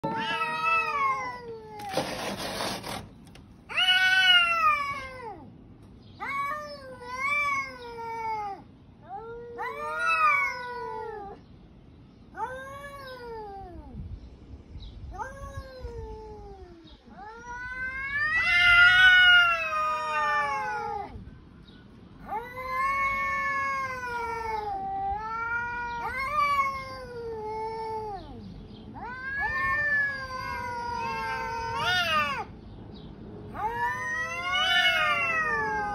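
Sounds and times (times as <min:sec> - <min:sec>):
cats yowling: 0:00.0 - 0:02.2, 0:03.7 - 0:05.5, 0:06.2 - 0:11.4, 0:12.3 - 0:14.0, 0:15.1 - 0:21.2, 0:22.2 - 0:32.6, 0:33.5 - 0:35.9.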